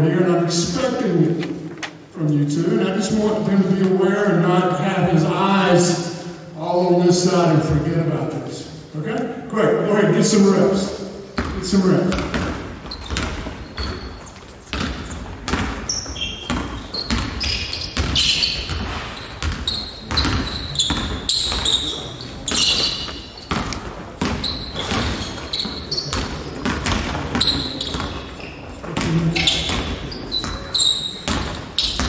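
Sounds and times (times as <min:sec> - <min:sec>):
sneakers squeaking: 0:10.2 - 0:32.0
basketball bouncing on wooden floor: 0:11.4 - 0:32.0.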